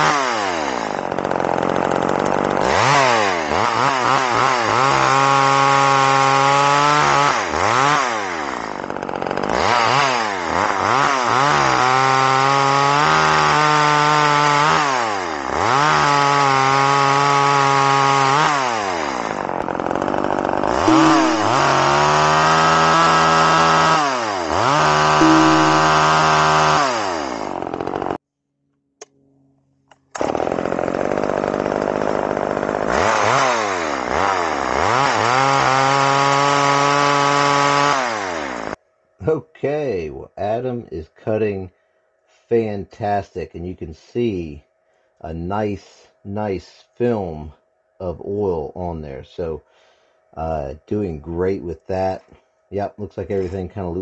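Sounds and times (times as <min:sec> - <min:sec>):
chainsaw revving and cutting wood: 0:00.0 - 0:28.2, 0:30.0 - 0:38.8.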